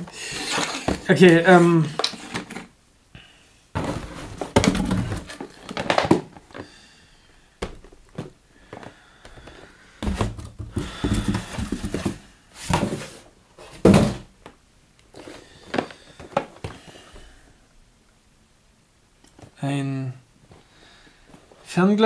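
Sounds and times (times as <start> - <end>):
cardboard boxes rustling and scraping: 0.0 - 2.7, 3.8 - 6.7, 7.8 - 14.3
box thunk on desk: 13.8 - 14.3.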